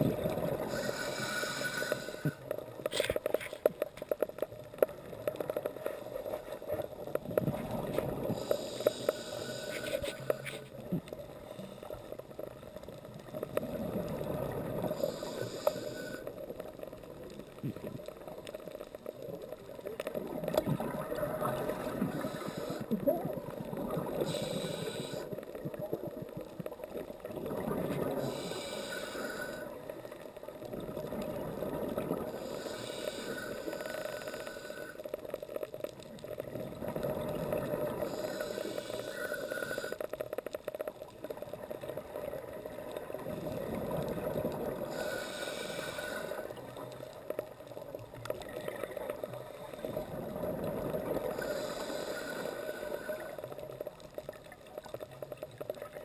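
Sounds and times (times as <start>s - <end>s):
regulator breath hissing: 0.6s - 2.4s, 8.3s - 10.7s, 14.9s - 16.3s, 22.1s - 22.9s, 24.2s - 25.4s, 28.2s - 29.8s, 32.3s - 35.0s, 38.0s - 40.1s, 44.9s - 46.6s, 51.3s - 53.4s.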